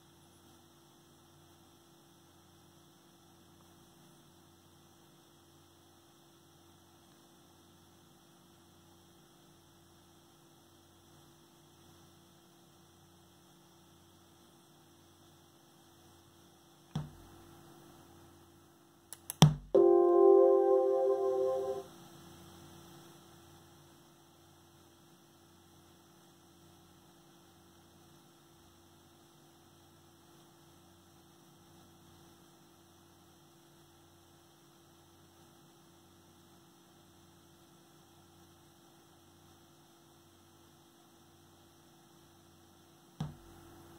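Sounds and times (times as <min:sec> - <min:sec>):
speaker hum and hiss: 0:00.0 - 0:43.9
computer volume chime: 0:19.8 - 0:21.9
sharp speaker pop: 0:43.2 - 0:43.5.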